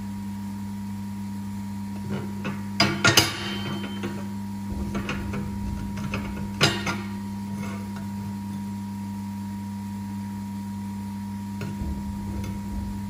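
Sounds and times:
steady machine hum: 0:00.0 - 0:13.0
steel plate knocking and scraping: 0:02.4 - 0:08.4, 0:11.6 - 0:13.0.

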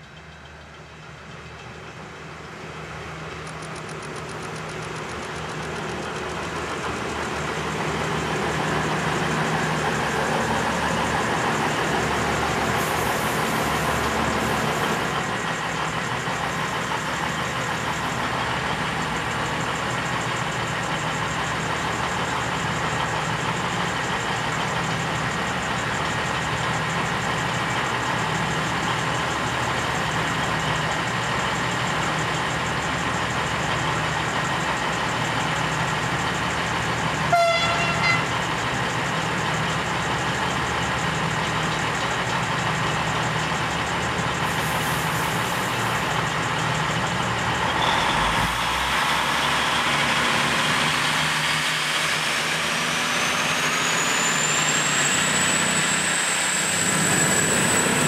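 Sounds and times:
diesel railcar idling: 0:00.0 - 0:58.0
train horn toot: 0:37.3 - 0:38.3.

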